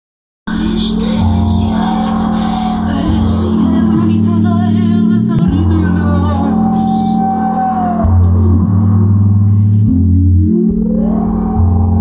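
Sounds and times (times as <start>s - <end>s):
woman singing a held note: 0.5s - 5.6s
synthesizer bass notes: 0.5s - 12.0s.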